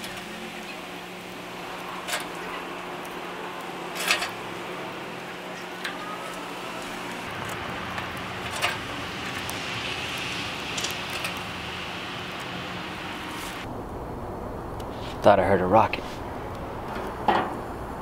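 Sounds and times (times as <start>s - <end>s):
fire rushing in a stove: 0.0s - 13.7s
twigs crackling and snapping: 7.1s - 13.7s.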